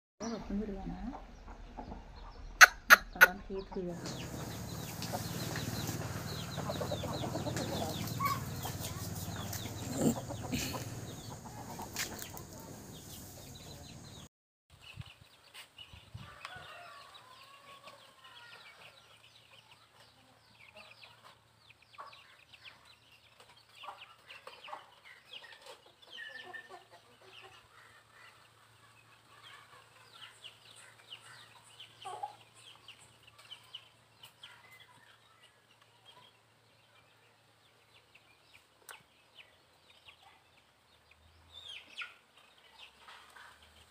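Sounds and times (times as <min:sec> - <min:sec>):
chickens clucking: 0:00.2 - 0:14.3, 0:15.0 - 0:43.9
chirps: 0:00.2 - 0:14.3.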